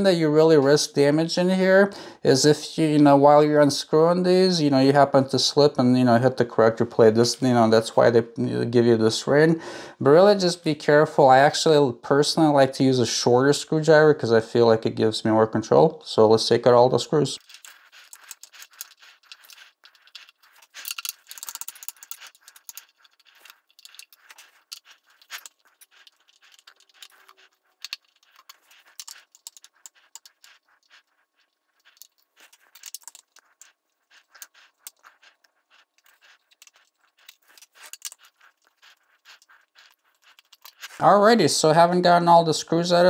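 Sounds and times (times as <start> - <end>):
screwdriver clicks and scrapes: 17.4 - 31.1, 31.8 - 41.0.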